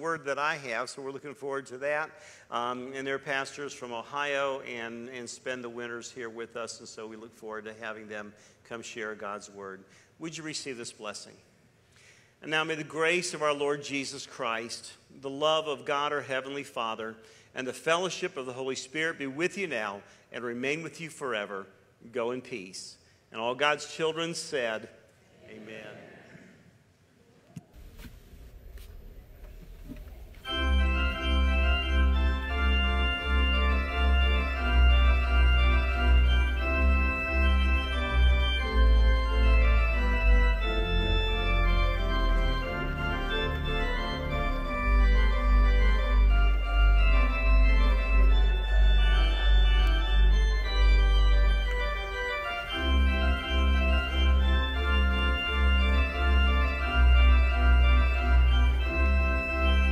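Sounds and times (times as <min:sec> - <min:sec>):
organ playing chords: 0:30.1 - 0:59.9.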